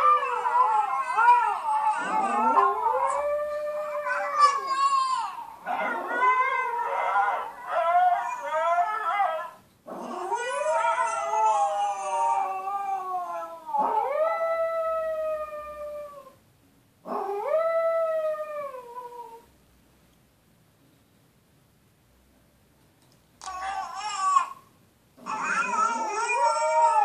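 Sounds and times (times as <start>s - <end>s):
dog howling: 0.0s - 5.0s, 5.7s - 16.4s, 25.2s - 27.0s.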